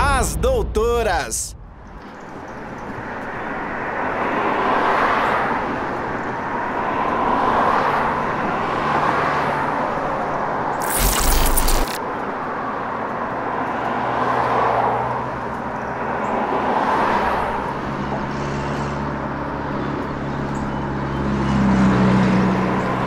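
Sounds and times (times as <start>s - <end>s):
cars passing: 0.0s - 11.4s, 12.2s - 23.0s
loud burst of noise: 10.8s - 12.0s.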